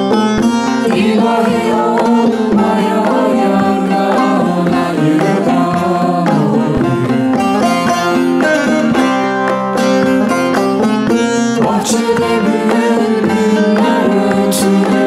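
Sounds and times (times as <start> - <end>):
long-necked lute folk music: 0.0 - 15.0
woman singing: 0.8 - 7.0, 11.5 - 15.0.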